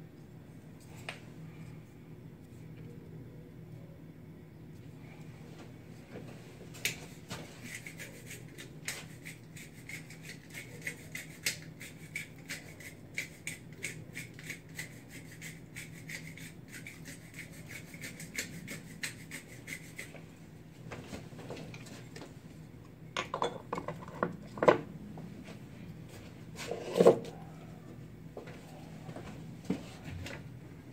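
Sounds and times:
kitchenware knocking and clattering: 23.2s - 24.8s.

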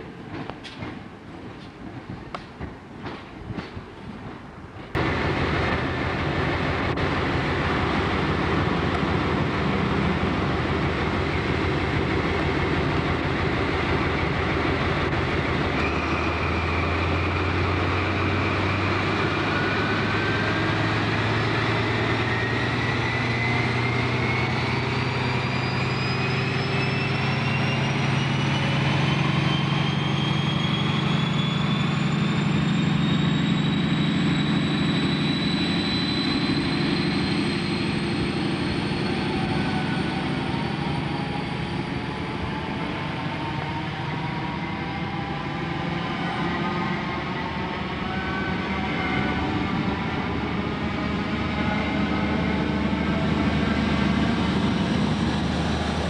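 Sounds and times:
diesel engine drone: 4.9s - 56.0s
turbocharger whistle rising: 15.8s - 56.0s.

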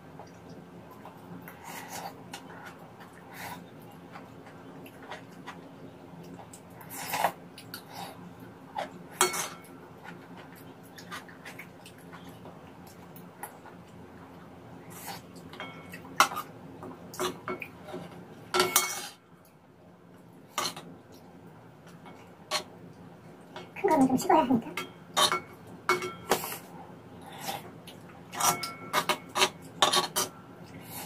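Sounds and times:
metal spoon clinking on plate: 24.8s - 26.4s, 28.4s - 30.3s
spoon scraping: 28.3s - 30.3s.

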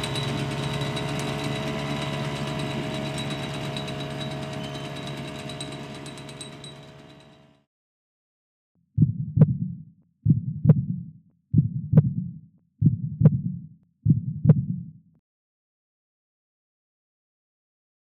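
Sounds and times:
heartbeat thumps: 9.0s - 14.9s.

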